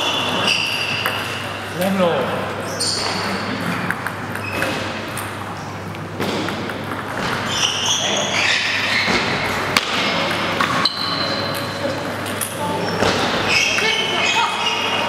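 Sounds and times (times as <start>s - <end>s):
high squeaks: 2.7s - 3.4s, 7.4s - 9.2s, 12.8s - 15.0s
table tennis ball knocking: 6.2s - 7.6s
background chatter: 9.5s - 15.0s.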